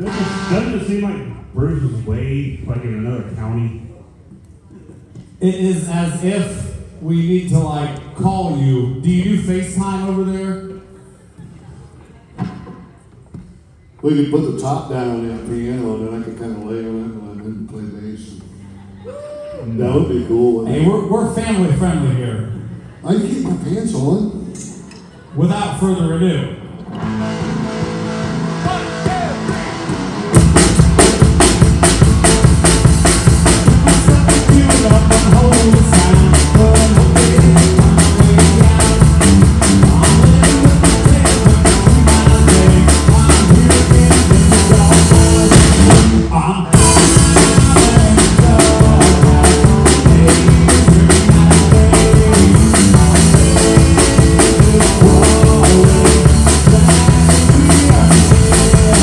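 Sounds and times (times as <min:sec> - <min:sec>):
live rock band playing: 0:00.0 - 0:01.4, 0:26.8 - 0:59.0.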